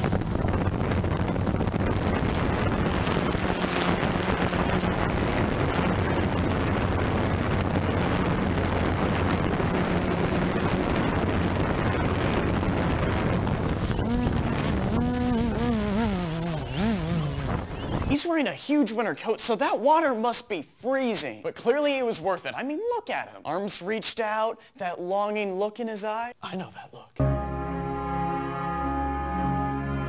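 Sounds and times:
drone propellers buzzing: 0:00.0 - 0:18.0
wind noise: 0:00.0 - 0:18.3.

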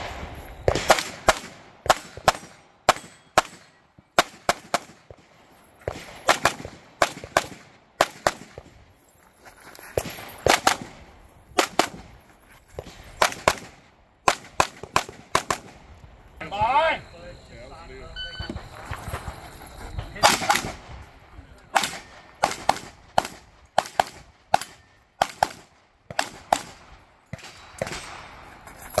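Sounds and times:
pistol shots: 0:00.0 - 0:08.8, 0:10.0 - 0:12.2, 0:12.8 - 0:15.8, 0:20.2 - 0:21.0, 0:21.7 - 0:28.4.

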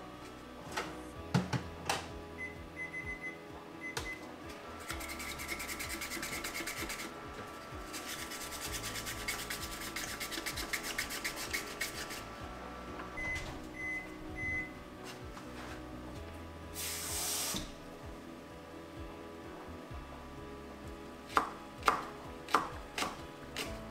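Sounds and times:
appliance hum: 0:00.0 - 0:23.9
utensil scraping a bowl: 0:04.8 - 0:07.2, 0:07.8 - 0:12.4.

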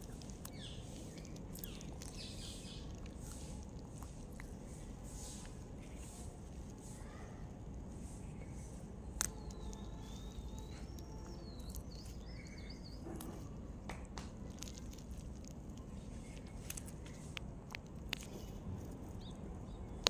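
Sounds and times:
bird chirping: 0:00.0 - 0:04.1, 0:08.4 - 0:13.7
outdoor background noise: 0:00.0 - 0:20.0
tortoise biting vegetable: 0:00.0 - 0:20.0.

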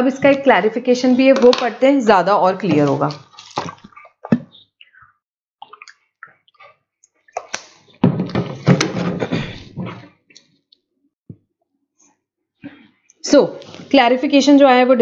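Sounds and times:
person drinking: 0:03.2 - 0:07.9.

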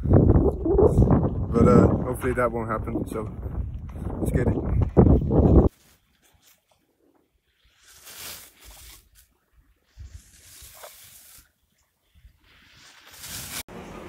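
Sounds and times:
skis swishing through snow: 0:07.4 - 0:14.0.

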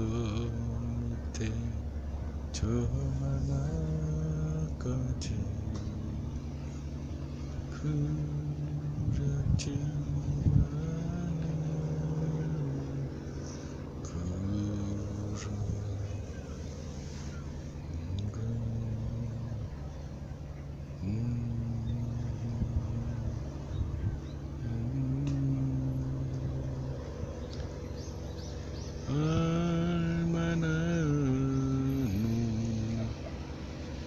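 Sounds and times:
man humming: 0:00.0 - 0:01.8, 0:07.6 - 0:16.2, 0:17.8 - 0:19.7, 0:21.0 - 0:23.4, 0:24.6 - 0:27.0, 0:29.0 - 0:33.4.

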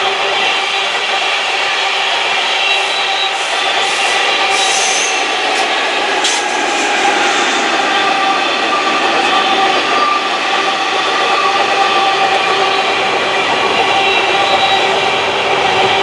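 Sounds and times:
train wagons rolling past: 0:02.3 - 0:12.5.

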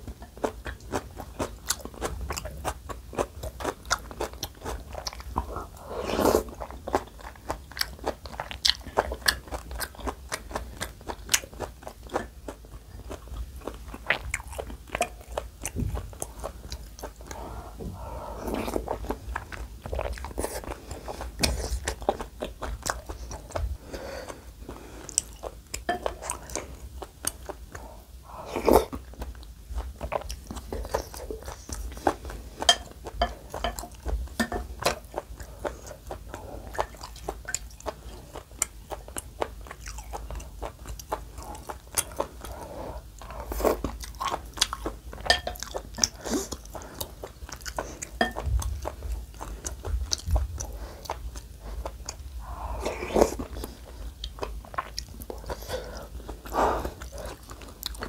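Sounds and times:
person chewing with wet mouth clicks: 0:06.4 - 0:17.4, 0:28.6 - 0:58.0.

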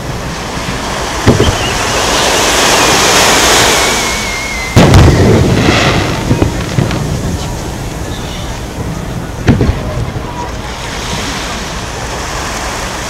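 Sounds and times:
firework crackle: 0:00.0 - 0:10.3
surf on the shore: 0:00.0 - 0:13.0
firework whistling: 0:00.9 - 0:08.6
firework boom: 0:01.2 - 0:02.1, 0:04.6 - 0:07.7, 0:08.8 - 0:10.2.

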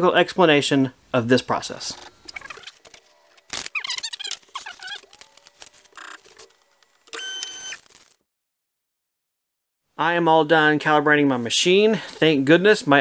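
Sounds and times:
stepper motors whining: 0:03.7 - 0:08.0.

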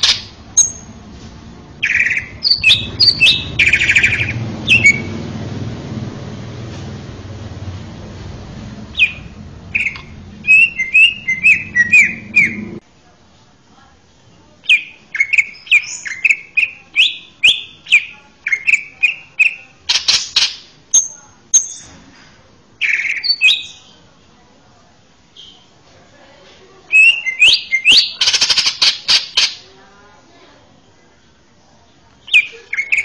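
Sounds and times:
bird singing whistled notes: 0:00.6 - 0:00.9, 0:01.8 - 0:05.1, 0:09.0 - 0:12.8, 0:14.7 - 0:19.7, 0:22.8 - 0:23.9, 0:26.9 - 0:28.2
harsh rasping bird notes: 0:01.8 - 0:05.4, 0:08.9 - 0:12.8.

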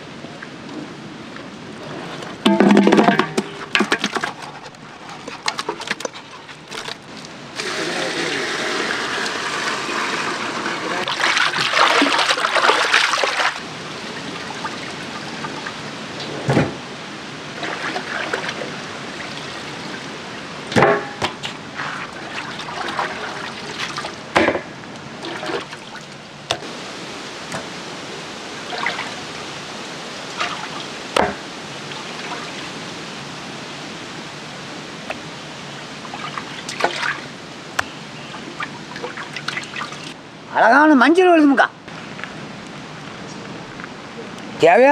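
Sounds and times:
hands sloshing water: 0:10.7 - 0:13.6, 0:21.8 - 0:24.2, 0:36.1 - 0:37.3, 0:38.3 - 0:40.2.

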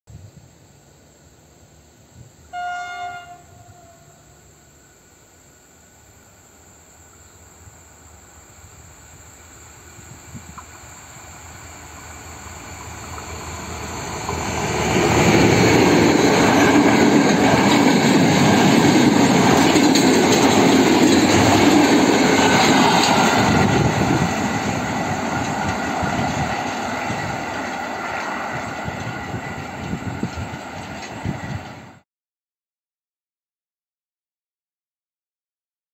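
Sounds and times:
diesel locomotive passing: 0:01.6 - 0:05.2, 0:07.0 - 0:32.0
locomotive horn blast: 0:02.5 - 0:04.3
wagons clattering over rail joints: 0:15.7 - 0:23.7.

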